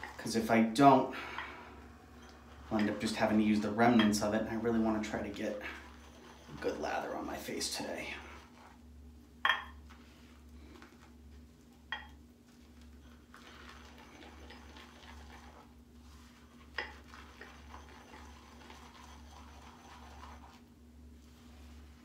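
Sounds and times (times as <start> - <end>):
brush clinking against bowl: 2.1 - 7.6, 9.4 - 9.8
shaving brush swishing lather: 12.5 - 22.0.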